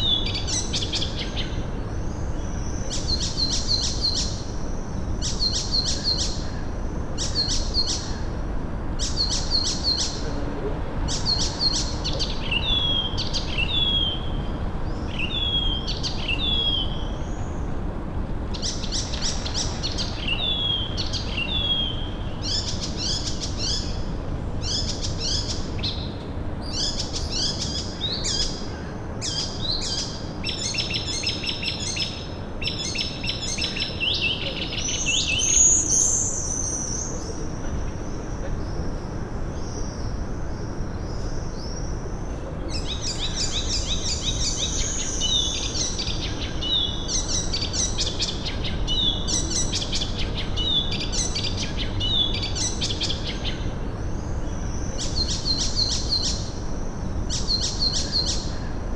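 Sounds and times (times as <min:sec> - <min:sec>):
low background hum: 0:00.0 - 0:58.9
songbirds chirping: 0:00.0 - 0:58.9.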